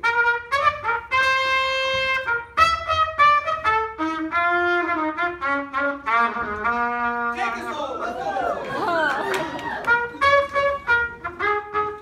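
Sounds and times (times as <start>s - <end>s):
horn solo: 0.0s - 7.7s, 9.7s - 12.0s
jazz big band playing: 0.0s - 8.6s, 9.5s - 12.0s.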